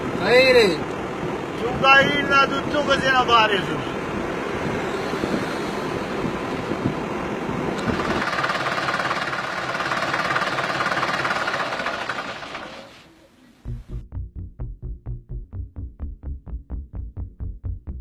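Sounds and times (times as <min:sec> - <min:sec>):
road noise: 0:00.0 - 0:13.7
vehicle engine running: 0:03.6 - 0:13.4.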